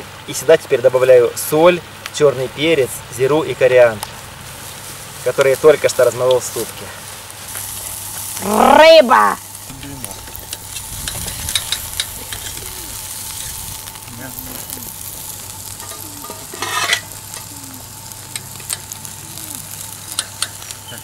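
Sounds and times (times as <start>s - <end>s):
fish sizzling on a grill: 0.0s - 21.0s
metal spatulas scraping a grill: 9.8s - 14.4s, 15.7s - 17.5s, 20.1s - 20.7s.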